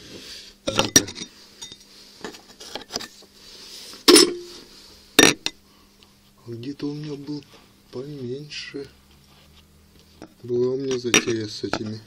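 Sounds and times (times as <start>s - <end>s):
soft handling noise: 6.0s - 12.0s.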